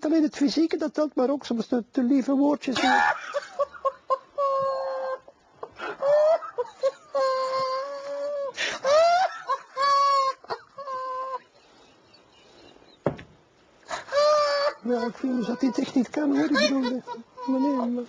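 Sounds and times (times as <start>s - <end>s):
man stifled laughter: 2.8s - 11.5s.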